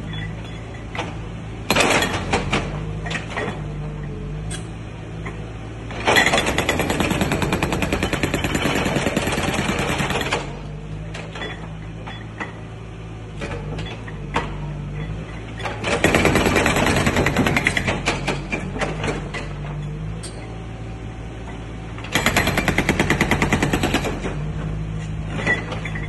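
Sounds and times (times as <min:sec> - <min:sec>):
excavator engine running: 0:00.0 - 0:26.0
hydraulic breaker hammering concrete: 0:06.0 - 0:10.6, 0:15.6 - 0:19.3, 0:22.1 - 0:24.5.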